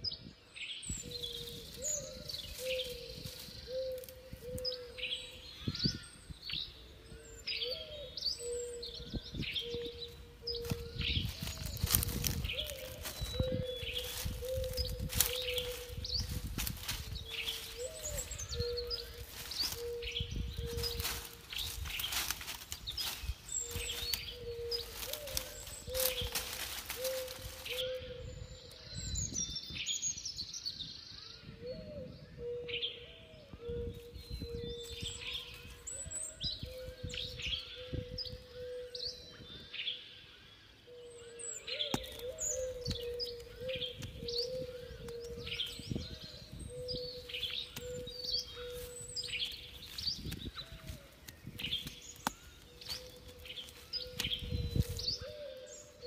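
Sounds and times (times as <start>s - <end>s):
birds chirping: 0.0s - 56.0s
low repeated bird call: 0.8s - 29.3s, 31.1s - 56.0s.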